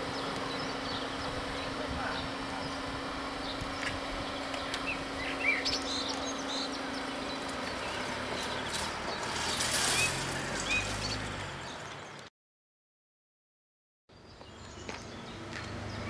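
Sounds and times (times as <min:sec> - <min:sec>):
car driving over crossing: 0:00.0 - 0:12.2
barrier motors humming: 0:00.0 - 0:12.3
birds chirping: 0:00.0 - 0:12.3, 0:14.1 - 0:16.0.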